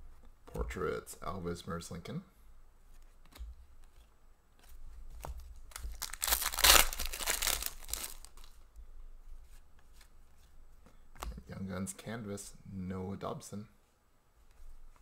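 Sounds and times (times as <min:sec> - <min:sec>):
wrapper crinkling: 0:05.6 - 0:08.6
foil wrapper tearing: 0:05.8 - 0:08.5.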